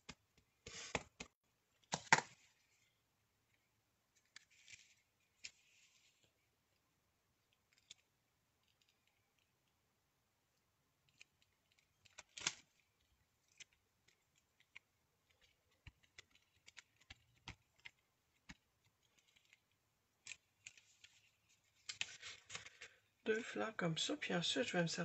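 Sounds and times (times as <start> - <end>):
paper and plastic rustling: 4.2 - 6.3, 20.3 - 23.0.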